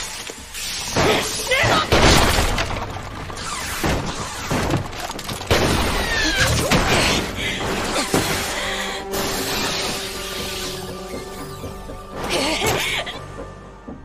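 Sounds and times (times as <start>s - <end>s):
background music: 5.2s - 14.0s.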